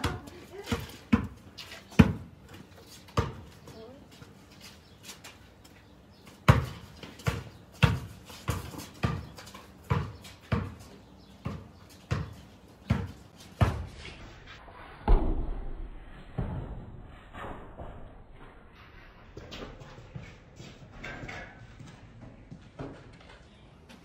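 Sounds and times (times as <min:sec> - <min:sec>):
basketball bouncing on paving: 0:00.0 - 0:03.9, 0:06.2 - 0:14.0.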